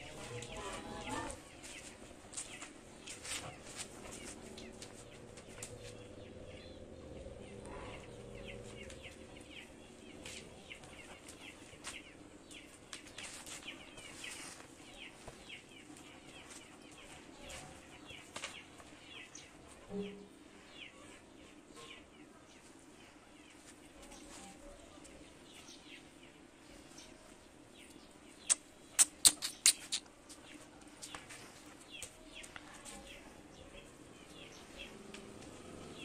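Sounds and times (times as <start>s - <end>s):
small birds chirping: 0.0s - 36.0s
clicks and scuffs: 1.6s - 6.0s, 28.4s - 33.1s.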